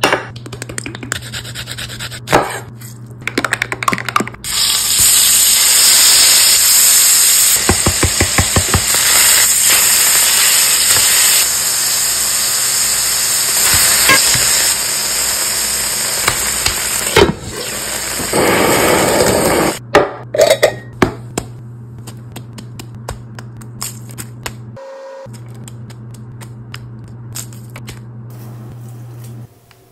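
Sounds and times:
burger patties sizzling in oil: 4.4 - 19.8.

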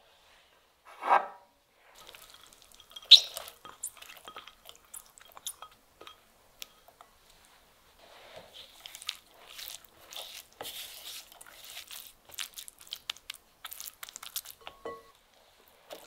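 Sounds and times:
glass clink: 2.0 - 6.9, 14.6 - 15.2
spatula scraping glass bowl: 2.0 - 6.9, 8.0 - 12.1.

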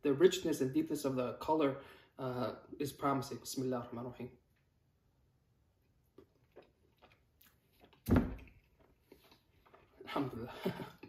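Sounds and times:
person chewing food: 5.8 - 10.0
sudden thump: 8.1 - 8.5.

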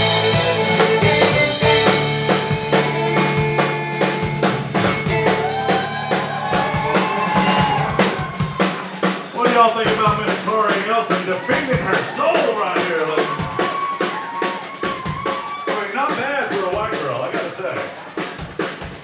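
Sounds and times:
drum kit beat: 0.0 - 19.0
fiddle playing fast runs: 0.0 - 19.0.

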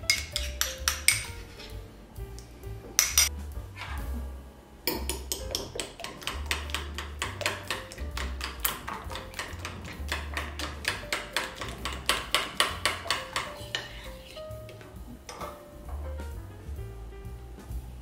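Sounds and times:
background music with bass: 0.0 - 18.0
fork beating egg on plate: 0.1 - 1.4, 4.9 - 14.8
spoon scraping glass bowl: 0.1 - 1.7, 7.4 - 14.4.

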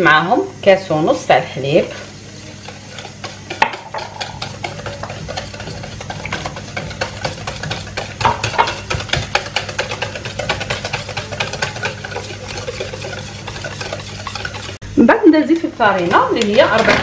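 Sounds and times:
whisk clicking against metal bowl: 2.6 - 14.8.

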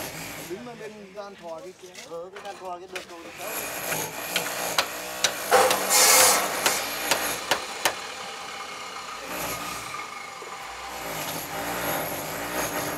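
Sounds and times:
wood scraping: 1.4 - 8.0
sharp knocks: 3.9 - 8.0.

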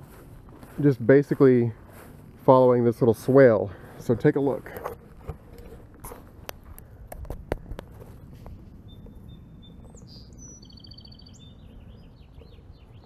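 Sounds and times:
footsteps on lawn: 0.0 - 8.8.

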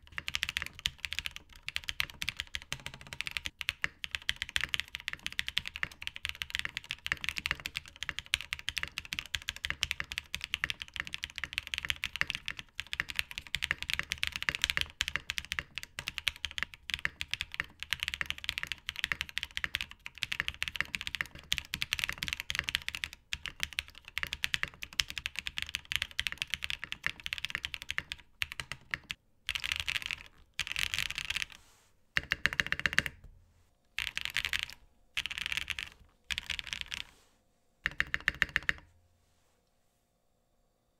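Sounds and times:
mechanical keyboard typing: 0.0 - 31.6, 32.2 - 33.3, 34.0 - 37.1, 37.8 - 38.9.

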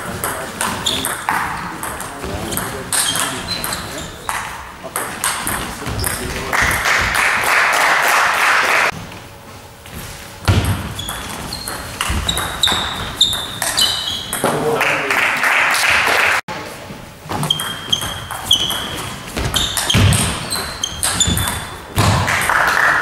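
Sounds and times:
table tennis ball pings: 10.6 - 14.6, 17.5 - 22.6.

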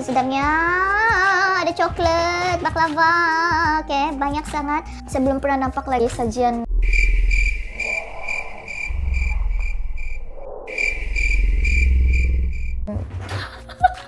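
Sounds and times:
low rumble: 6.7 - 12.9
cricket chirping: 6.8 - 12.9.

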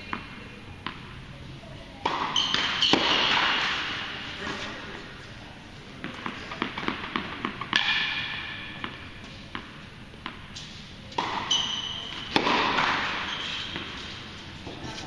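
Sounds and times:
tennis ball bouncing on court: 0.0 - 1.1, 2.0 - 4.0, 6.0 - 14.2
shoe squeak: 2.3 - 3.2, 11.4 - 12.4, 13.1 - 14.0.

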